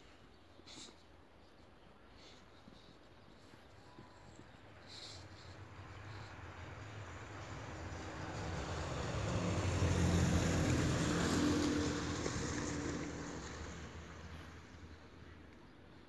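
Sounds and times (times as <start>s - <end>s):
vehicle passing by: 4.9s - 15.2s.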